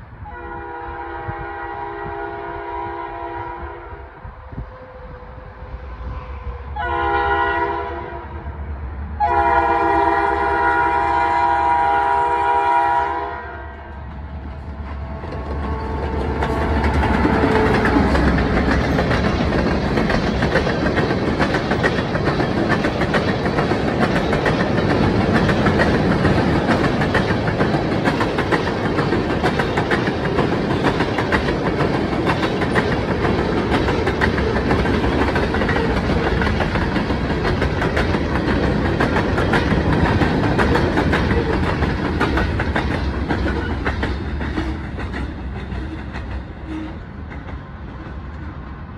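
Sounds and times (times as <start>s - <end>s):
freight train rolling past: 0.0s - 48.9s
wheels clicking over rail joints: 14.1s - 48.4s.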